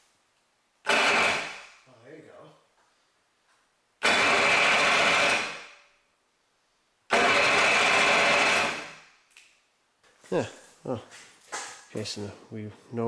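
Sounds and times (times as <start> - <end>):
electric starter motor cranking: 0.8 - 1.6, 4.0 - 5.7, 7.1 - 9.0.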